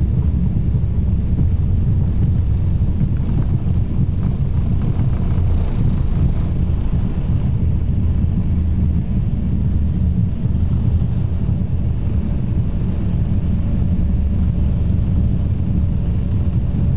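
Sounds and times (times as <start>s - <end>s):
jet engine noise in cabin: 0.0s - 16.9s
wheels rumbling on runway: 0.0s - 16.9s.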